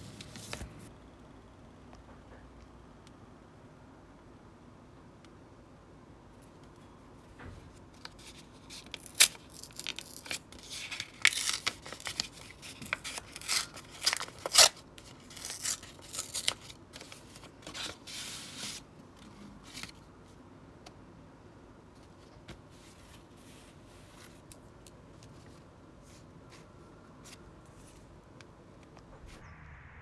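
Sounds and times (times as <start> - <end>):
paper card rustling: 0.0 - 0.9, 8.0 - 20.0
paper envelope tearing: 8.4 - 18.1.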